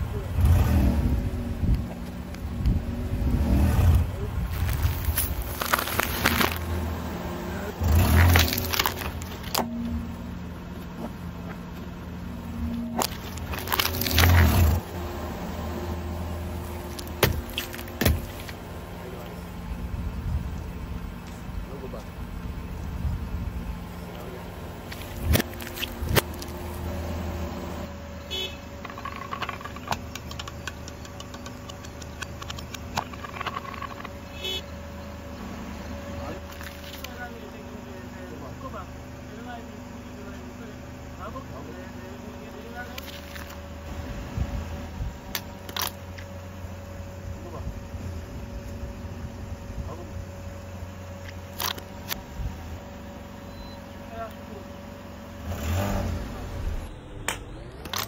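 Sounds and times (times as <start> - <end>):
car engine running: 0.0 - 58.0
tyre crackling over gritty asphalt: 4.0 - 10.2, 10.8 - 19.4, 24.2 - 27.5, 36.3 - 37.5, 42.4 - 43.9
snack packets crackling: 4.5 - 6.7, 8.1 - 9.5, 13.0 - 14.7.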